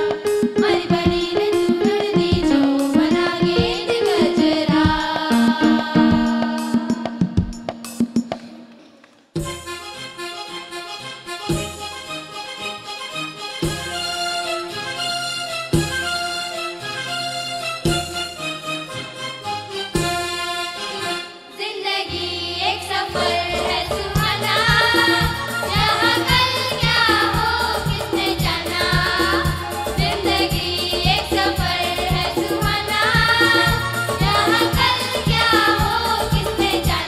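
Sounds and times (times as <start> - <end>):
steady drum beat: 0.0 - 8.7, 23.7 - 37.0
instrumental accompaniment: 0.0 - 37.0
children singing in chorus: 20.5 - 37.0.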